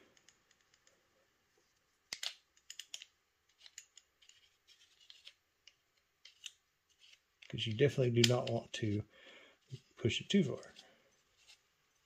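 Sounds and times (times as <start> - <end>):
threaded cap clicking and scraping: 2.1 - 7.6.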